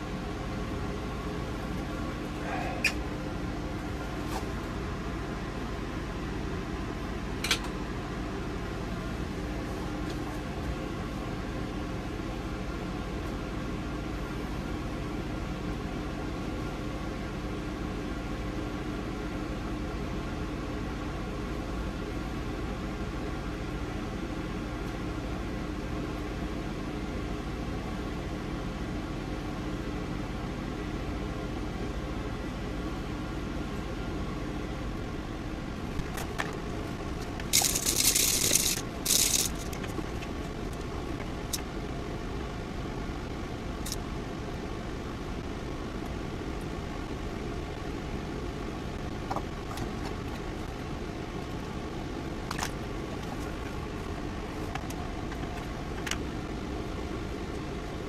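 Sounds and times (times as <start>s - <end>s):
fan humming: 0.0s - 58.0s.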